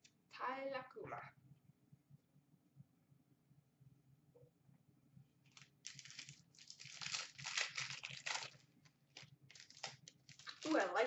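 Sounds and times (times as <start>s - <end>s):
plastic wrapper crinkling and tearing: 5.4s - 11.0s.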